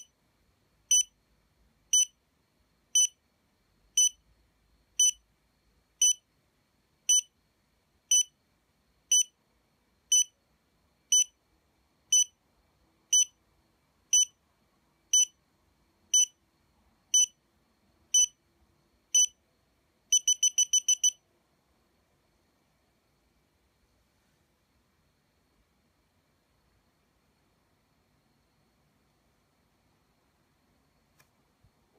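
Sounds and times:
short high beeps: 20.2 - 21.2.

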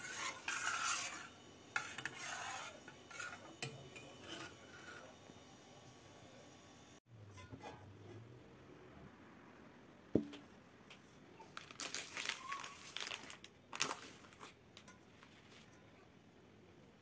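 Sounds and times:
plastic packaging crinkling: 11.5 - 14.6.

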